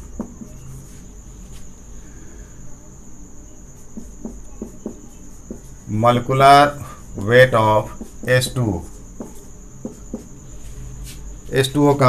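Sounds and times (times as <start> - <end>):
marker writing on whiteboard: 3.7 - 11.6.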